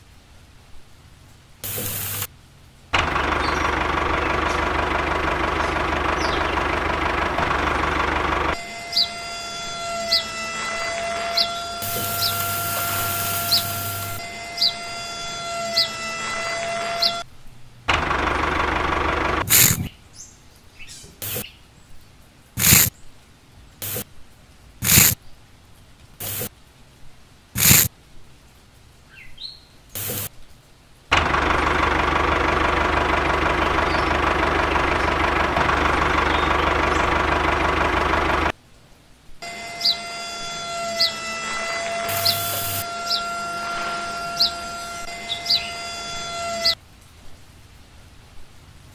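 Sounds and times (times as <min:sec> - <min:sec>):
small electric motor running: 0:01.6 - 0:02.3, 0:06.4 - 0:17.2, 0:18.3 - 0:19.9, 0:22.6 - 0:22.9, 0:23.8 - 0:24.0, 0:24.8 - 0:25.2, 0:26.2 - 0:26.5, 0:27.6 - 0:27.9, 0:30.0 - 0:30.3, 0:39.4 - 0:46.8.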